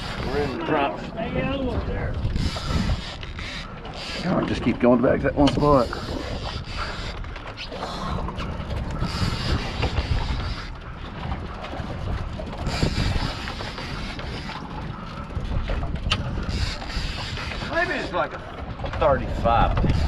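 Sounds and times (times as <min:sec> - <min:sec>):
fishing reel cranking: 0:02.1 - 0:04.4.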